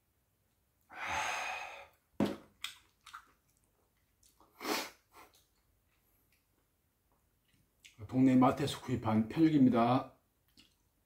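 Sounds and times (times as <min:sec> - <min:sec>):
breathy exhale: 0:00.9 - 0:02.0.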